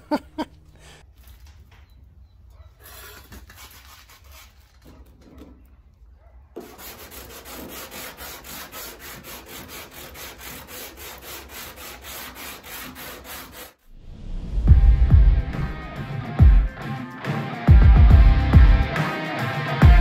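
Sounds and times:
hand sanding with sandpaper: 2.8 - 5.1, 6.6 - 13.8.

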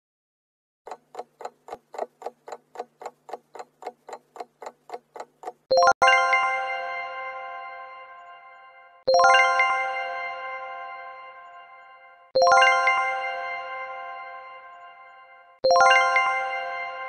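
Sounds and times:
clock ticking: 0.9 - 5.9.

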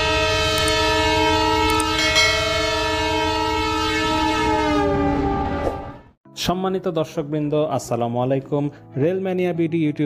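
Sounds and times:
train horn blast: 0.0 - 6.2.

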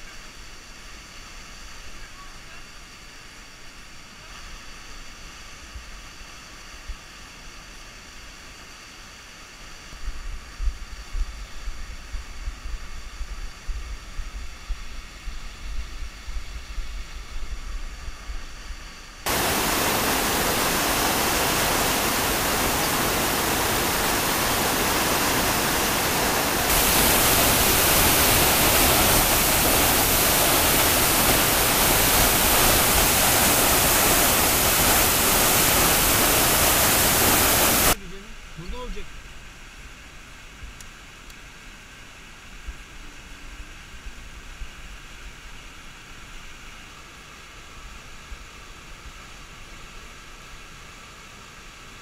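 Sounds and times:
waterfall rushing: 19.3 - 38.0.

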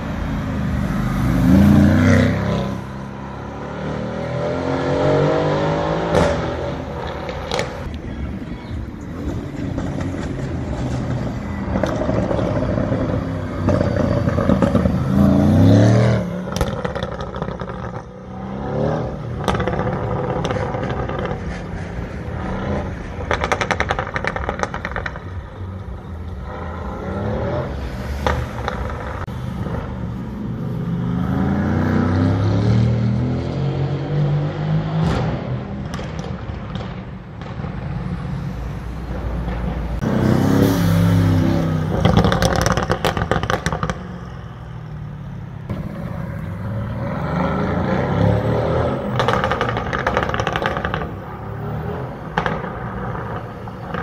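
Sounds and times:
city traffic noise: 0.0 - 54.0
exhaust crackling and popping: 6.1 - 8.0, 16.4 - 18.1, 19.4 - 26.6, 35.0 - 38.1, 41.8 - 44.6, 49.0 - 51.5, 52.2 - 54.0
car exhaust accelerating: 39.6 - 45.0, 45.6 - 54.0.

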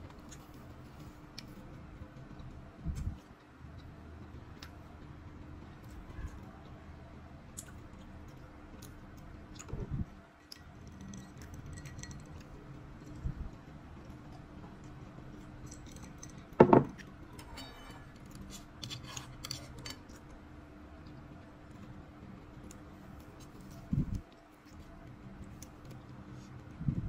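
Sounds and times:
faint steady hum: 0.0 - 27.0
tableware clinks and knocks: 15.7 - 18.2.

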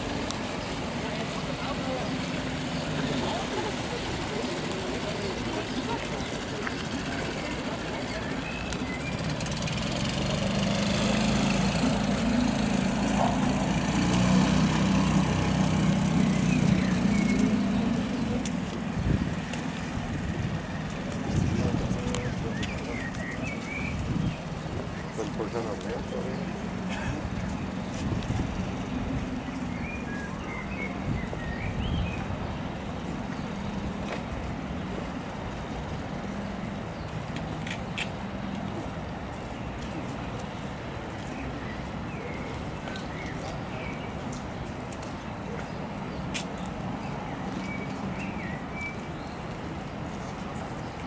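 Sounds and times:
faint engine hum: 0.0 - 51.0
outboard motor running: 9.0 - 18.3.

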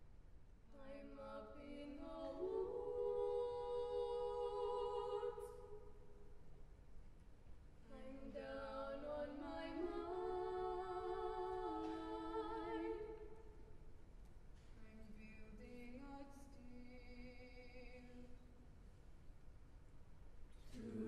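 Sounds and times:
vocal group singing a cappella: 0.7 - 6.1, 7.8 - 13.5, 20.6 - 21.0.

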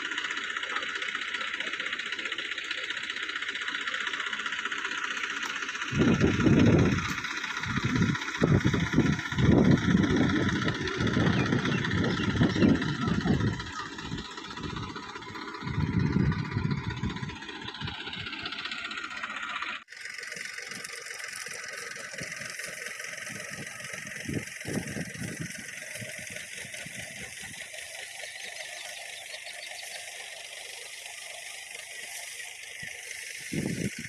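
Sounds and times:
tractor diesel engine under load: 0.0 - 34.0
palm fronds dragging: 21.5 - 34.0.

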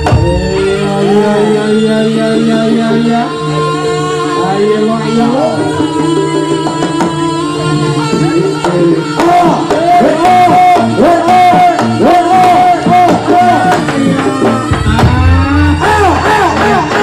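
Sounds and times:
drums beaten in quick pattern: 0.0 - 0.8, 6.0 - 17.0.

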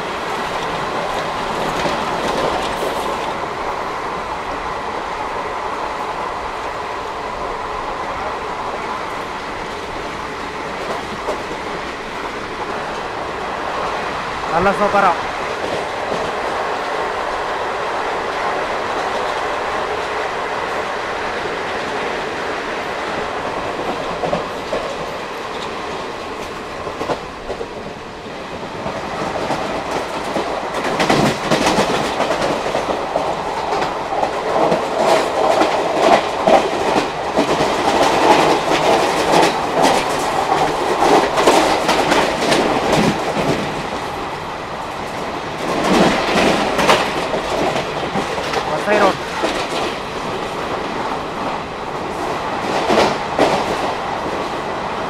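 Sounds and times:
train wheels clattering over joints: 0.0 - 3.9, 21.5 - 55.0
train rumble: 0.0 - 55.0.

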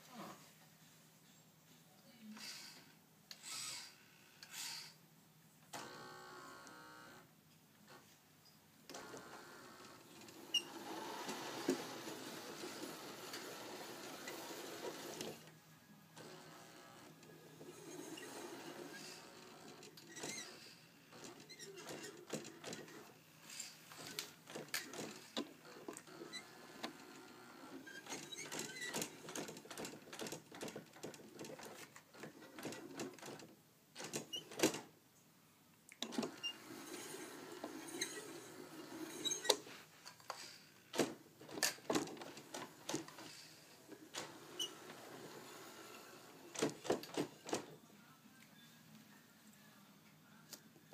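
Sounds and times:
toy car motor humming: 3.4 - 5.0.

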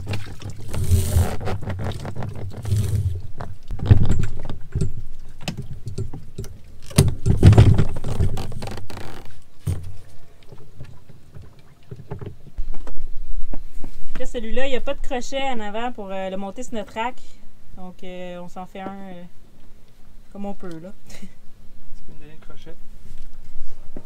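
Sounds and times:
knocks clicks and scrapes of motor: 0.0 - 9.0.

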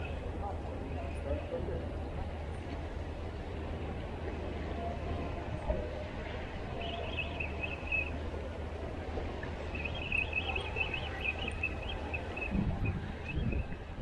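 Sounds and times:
choppy water: 0.0 - 14.0
wind buffeting microphone: 0.0 - 14.0.

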